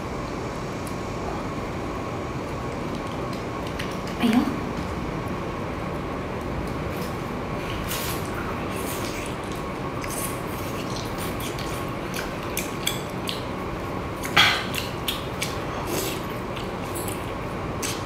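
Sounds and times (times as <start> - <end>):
wet mouth sounds: 7.9 - 13.5, 14.2 - 18.0.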